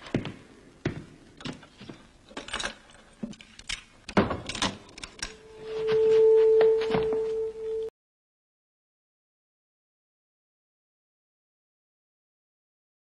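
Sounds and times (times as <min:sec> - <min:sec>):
steady held note: 0:05.3 - 0:07.9.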